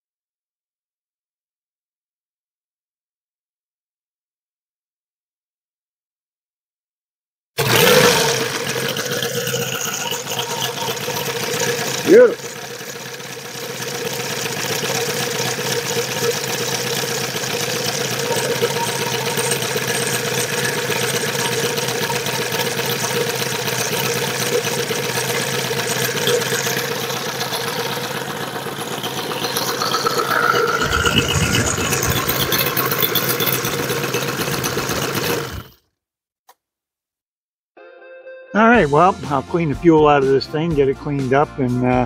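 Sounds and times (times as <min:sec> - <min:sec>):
model aircraft engine running: 0:07.6 - 0:35.8.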